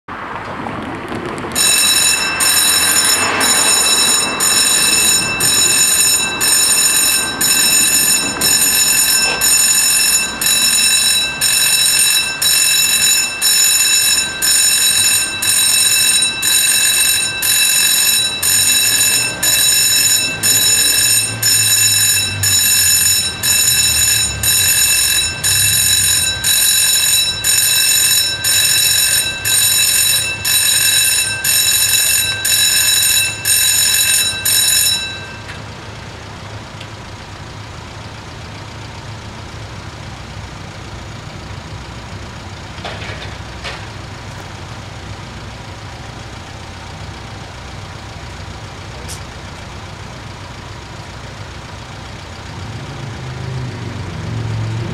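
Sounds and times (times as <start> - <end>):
level crossing bell ringing: 1.6 - 36.1.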